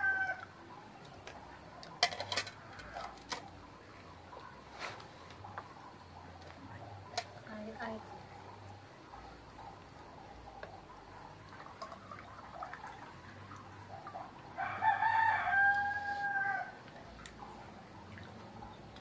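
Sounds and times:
rooster crowing: 0:00.0 - 0:00.5, 0:14.6 - 0:16.8.

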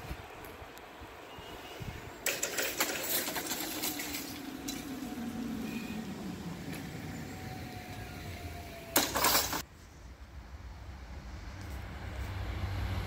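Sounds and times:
barrier drive rattle: 0:02.2 - 0:09.6
motor whine: 0:04.2 - 0:09.6.

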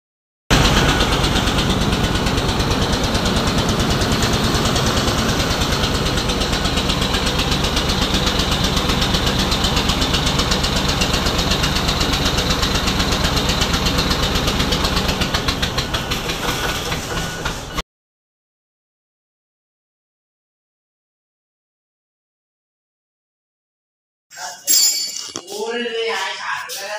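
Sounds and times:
diesel engine running: 0:00.5 - 0:17.8.

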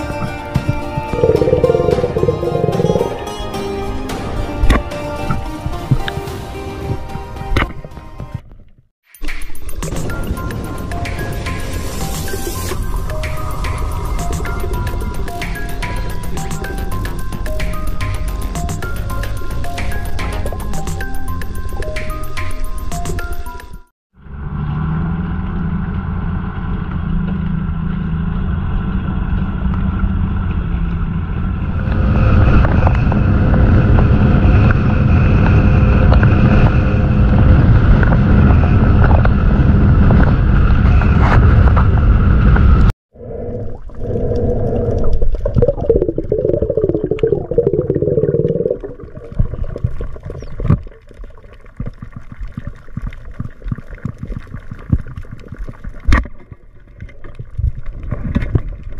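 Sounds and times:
underwater gurgling: 0:01.0 - 0:03.4, 0:43.1 - 0:58.9
faint underwater clicks: 0:43.4 - 0:58.9.

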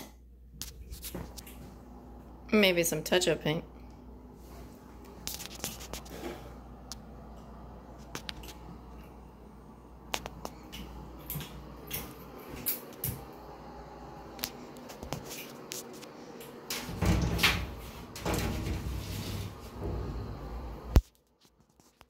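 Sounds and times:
shower doors rolling on metal track: 0:16.6 - 0:20.9.

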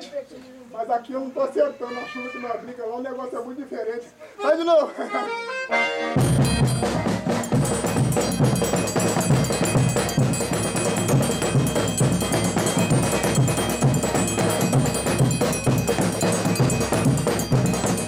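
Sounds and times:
drums beaten with sticks: 0:06.2 - 0:18.0
steady ringing tones: 0:06.3 - 0:18.0.

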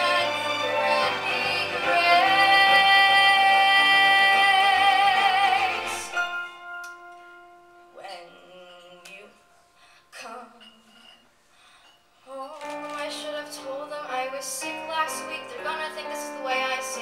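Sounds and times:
woman singing with vibrato: 0:00.0 - 0:06.4, 0:10.1 - 0:10.9, 0:12.2 - 0:17.0
piano accompaniment: 0:00.0 - 0:09.7, 0:12.5 - 0:17.0.

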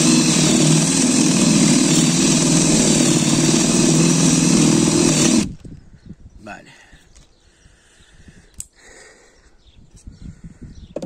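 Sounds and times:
drill bit rasping into wood: 0:00.0 - 0:05.6
drill motor whine: 0:00.0 - 0:05.6.

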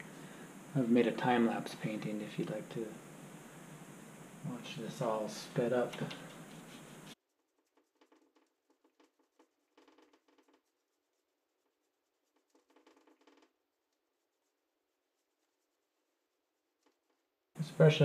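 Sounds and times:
brush strokes on canvas: 0:00.0 - 0:17.2.

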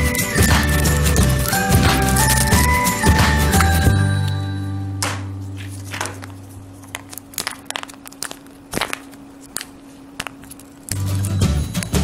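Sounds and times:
foil wrapper crinkling and tearing: 0:00.0 - 0:03.9, 0:05.5 - 0:12.0
plastic eggs clicking: 0:00.0 - 0:03.9, 0:05.9 - 0:12.0
background music: 0:00.0 - 0:05.5, 0:10.9 - 0:12.0.

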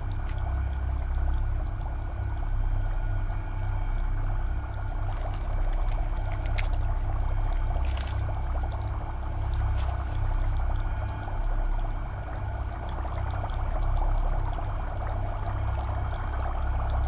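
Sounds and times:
water boiling in a saucepan: 0:00.0 - 0:17.0
paper wrapper crinkling: 0:05.1 - 0:06.9, 0:07.7 - 0:08.6, 0:09.5 - 0:10.6.

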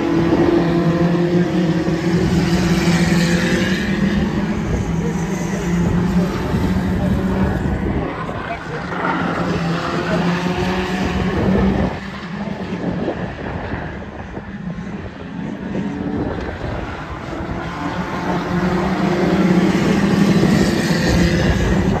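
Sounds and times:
race car engines droning: 0:00.0 - 0:22.0.

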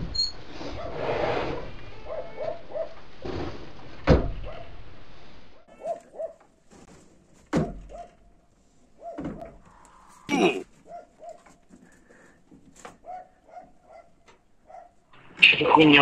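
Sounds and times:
yelping animal calls: 0:09.0 - 0:11.4.

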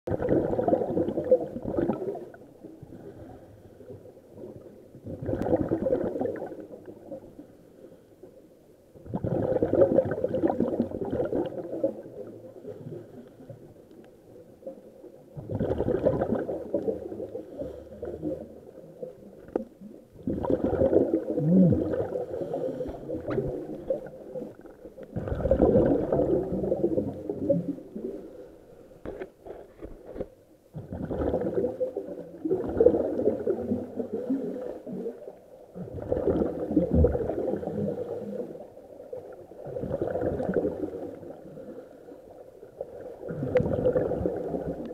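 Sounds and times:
exhaled bubbles gurgling: 0:00.1 - 0:07.5, 0:08.9 - 0:28.5, 0:30.7 - 0:44.9
underwater scuba breathing: 0:02.7 - 0:04.5, 0:07.4 - 0:08.6, 0:11.3 - 0:14.0, 0:15.5 - 0:19.6, 0:20.3 - 0:30.2, 0:32.9 - 0:39.2, 0:39.8 - 0:44.9.

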